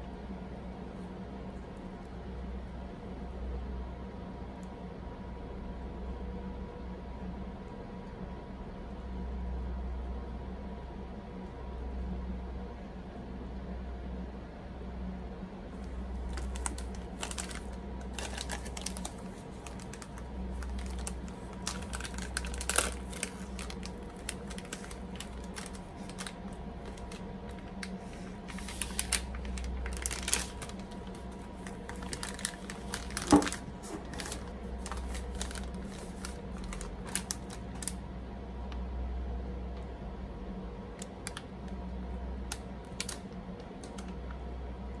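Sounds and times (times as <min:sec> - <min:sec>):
faint low hum: 0:00.0 - 0:45.0
plastic wrapper crinkling: 0:15.8 - 0:38.0, 0:42.5 - 0:44.2.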